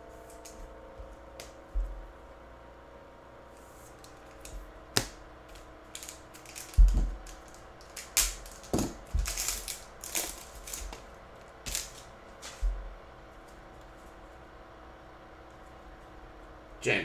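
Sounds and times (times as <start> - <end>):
card pack wrapper crinkling: 5.9 - 11.0, 11.7 - 12.1.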